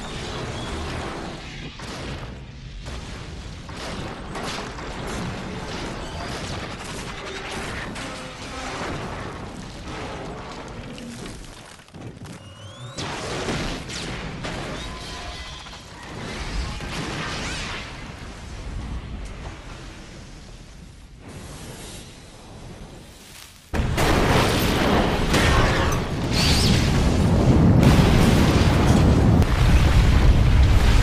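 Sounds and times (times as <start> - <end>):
crashing debris: 23.7 - 31.0
explosions: 23.7 - 31.0.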